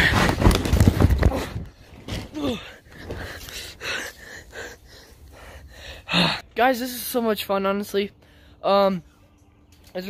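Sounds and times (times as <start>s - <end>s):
boy grunting: 2.3s - 2.8s
boy gasping: 2.4s - 6.5s.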